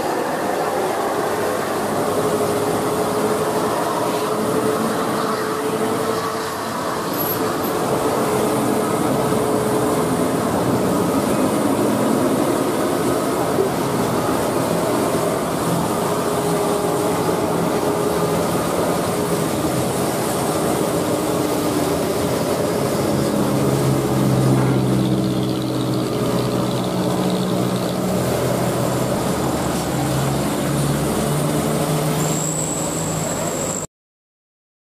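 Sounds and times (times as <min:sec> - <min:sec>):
truck diesel engine pulling uphill: 0:00.0 - 0:33.9
tyres hissing on wet road: 0:00.0 - 0:33.9
thin high whistle: 0:32.0 - 0:33.9.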